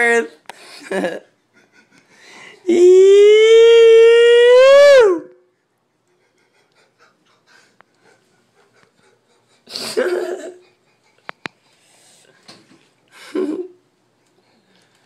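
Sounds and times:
man laughing loudly: 13.2s - 13.8s.

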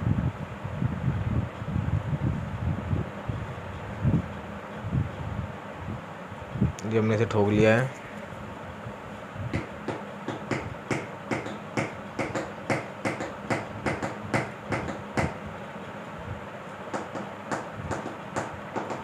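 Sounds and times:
hammer knocking on metal: 9.6s - 15.4s, 17.0s - 19.0s.

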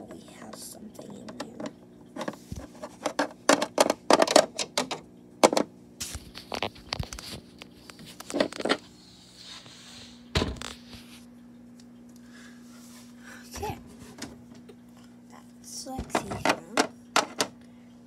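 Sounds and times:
plastic toys clicking and scraping: 1.3s - 5.6s.

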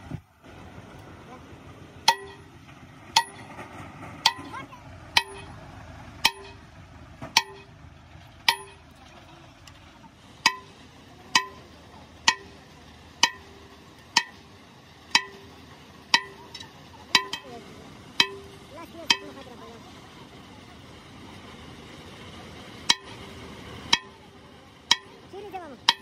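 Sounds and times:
sledgehammer striking steel: 2.0s - 2.5s, 3.2s - 3.5s, 4.2s - 4.6s, 5.2s - 5.6s, 6.2s - 6.6s, 7.3s - 7.7s, 8.4s - 8.8s, 10.4s - 12.6s, 13.2s - 14.4s, 15.1s - 15.5s, 16.1s - 17.6s, 18.2s - 19.4s, 22.9s - 23.2s, 23.9s - 24.2s, 24.9s - 25.2s.

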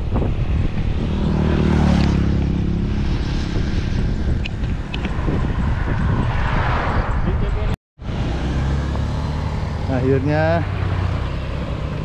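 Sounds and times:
wind buffeting microphone: 0.0s - 7.8s.

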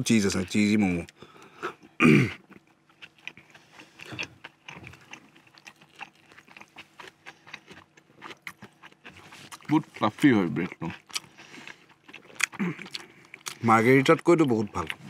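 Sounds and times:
chewing with wet mouth clicks: 0.3s - 9.8s, 10.4s - 15.0s.

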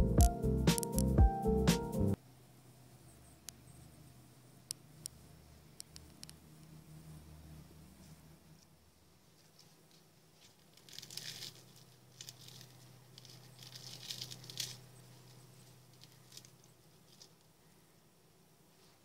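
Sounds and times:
crisp fried patty crackling: 9.8s - 17.5s.

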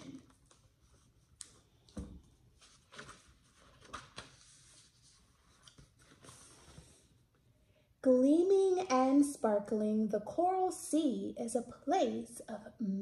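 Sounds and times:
rustling and tapping of a book: 0.0s - 7.0s.

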